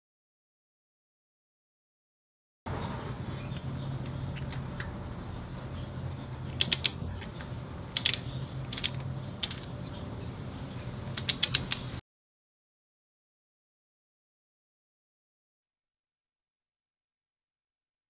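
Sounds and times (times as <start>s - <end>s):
steady low hum: 2.7s - 12.0s
socket ratchet clicking: 6.6s - 7.0s, 7.9s - 9.7s, 11.2s - 11.9s.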